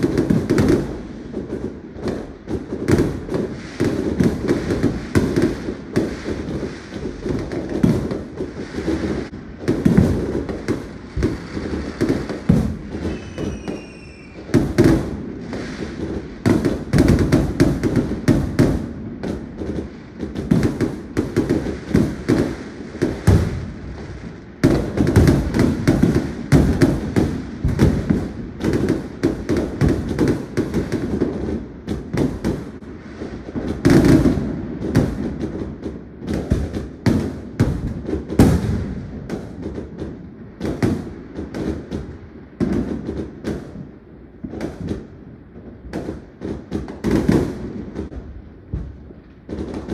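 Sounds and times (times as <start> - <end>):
fireworks bangs and crackling: 0.0 - 49.9
firework whistle: 11.2 - 15.8.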